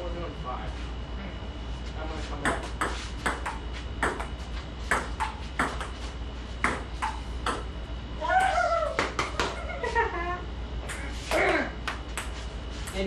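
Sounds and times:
ping-pong ball hitting paddles: 2.4s - 4.3s, 4.9s - 6.0s, 6.6s - 7.7s, 8.4s - 9.6s, 11.9s - 13.0s.

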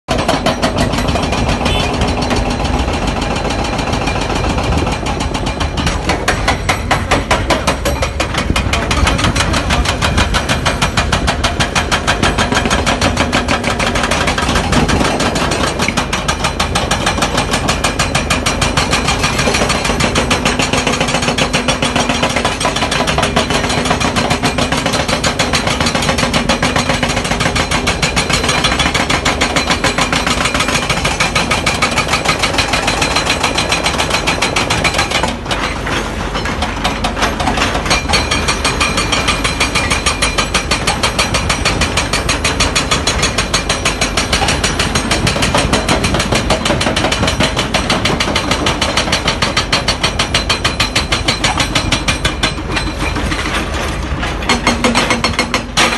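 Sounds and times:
diesel engines running: 0.1s - 20.7s, 32.7s - 55.9s
hydraulic breaker hammering stone: 0.1s - 55.9s.

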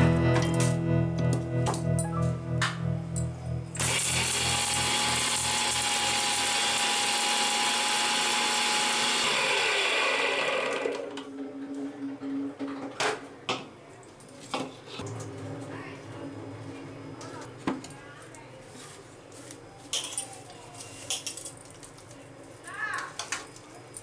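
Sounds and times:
mixer grinder whining: 3.7s - 11.3s.

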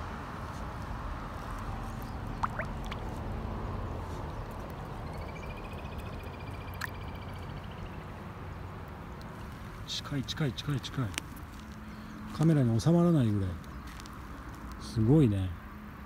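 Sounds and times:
fish gulping and splashing: 2.0s - 3.4s.

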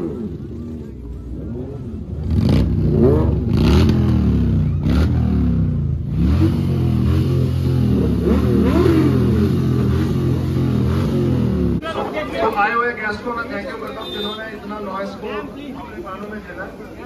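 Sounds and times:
motorcycle engines revving: 0.0s - 14.4s.

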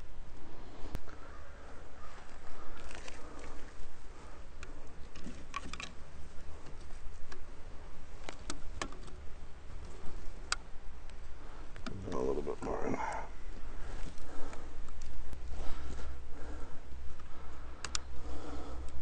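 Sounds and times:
low steady rumble: 0.0s - 19.0s
light clicks and taps: 17.2s - 18.1s.

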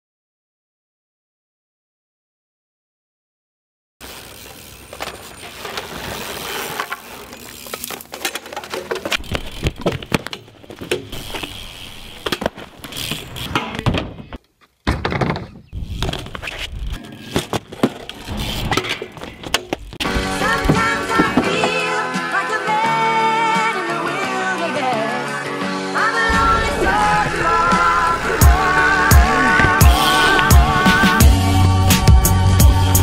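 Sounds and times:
bike frame banging on concrete: 5.0s - 16.3s
music: 20.0s - 33.0s.

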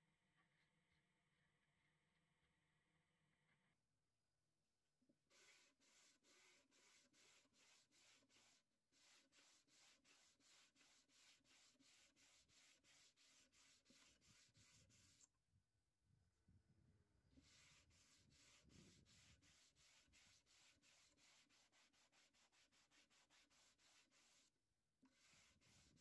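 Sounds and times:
hand sanding wood: 5.3s - 15.2s, 17.4s - 26.0s.

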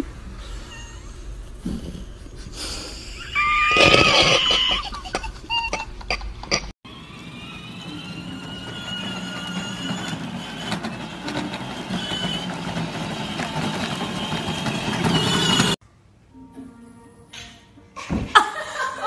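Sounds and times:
plastic wheels rumbling on paving: 6.5s - 15.8s
toy car motor whine: 6.9s - 15.8s.

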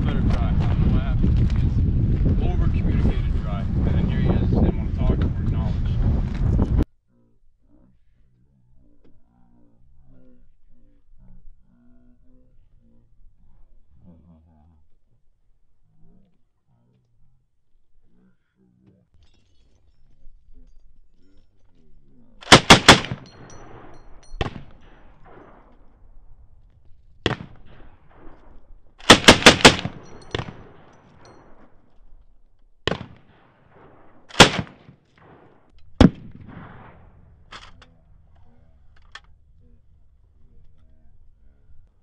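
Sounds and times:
machine gun bursts: 22.4s - 23.2s, 29.0s - 30.6s, 34.3s - 34.7s
single gunshots with echo: 22.4s - 25.7s, 27.2s - 28.2s, 29.0s - 30.9s, 32.9s - 37.2s.

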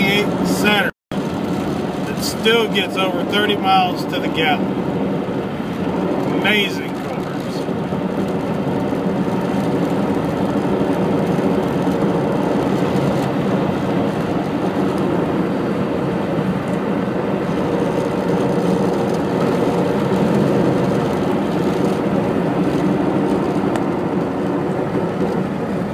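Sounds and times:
car engine drone from inside: 0.0s - 25.9s
road noise: 0.0s - 25.9s.

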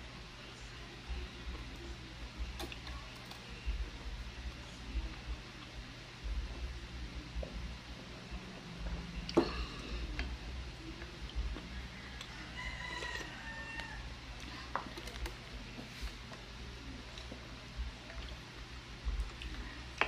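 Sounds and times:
rooster crowing: 11.8s - 14.1s.

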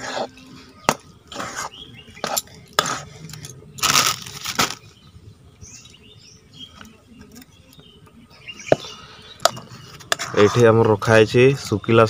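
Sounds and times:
spatula scraping a steel pan: 0.0s - 3.4s, 9.4s - 11.7s.

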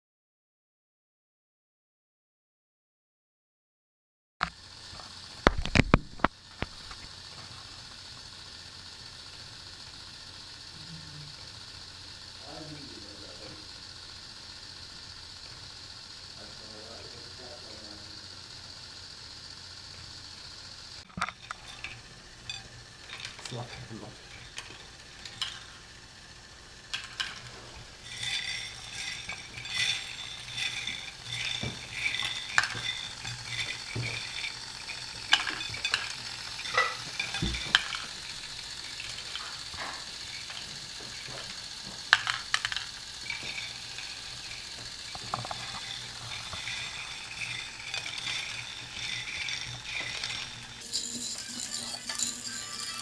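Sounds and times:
steady busy rattle: 4.5s - 53.0s
plastic parts clicking and rattling: 21.1s - 25.8s, 26.8s - 53.0s.

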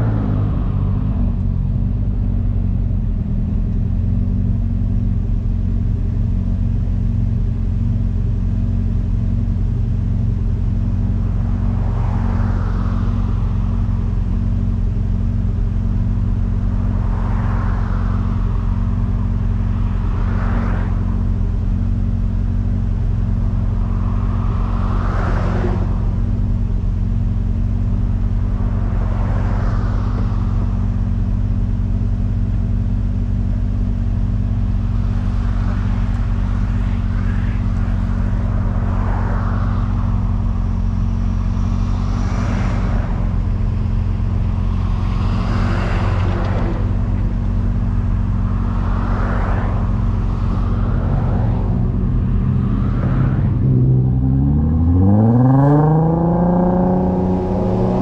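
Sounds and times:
car engine and road drone: 0.0s - 58.0s
vehicles whooshing past: 11.4s - 13.9s, 16.5s - 21.8s, 23.4s - 26.5s, 27.8s - 31.0s, 34.8s - 58.0s.

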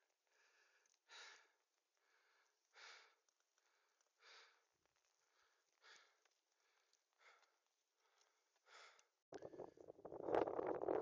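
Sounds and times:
faint breathing: 0.3s - 4.6s, 5.2s - 9.8s.

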